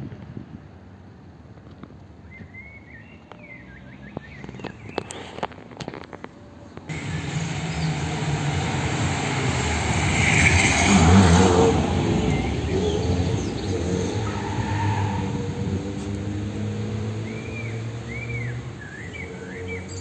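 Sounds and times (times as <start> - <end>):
car driving past: 6.9 - 20.0.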